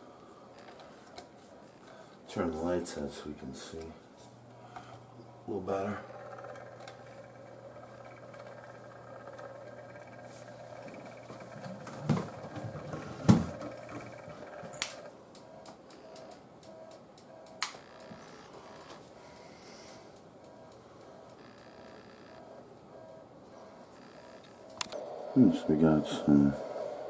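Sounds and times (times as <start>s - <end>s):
faint steady hum: 0.0s - 27.0s
sharp clicks: 13.6s - 18.1s, 24.2s - 25.1s.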